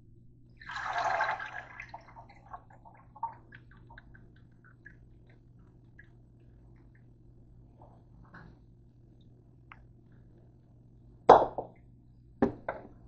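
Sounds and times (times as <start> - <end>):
water dripping from colander: 0.6 - 7.3.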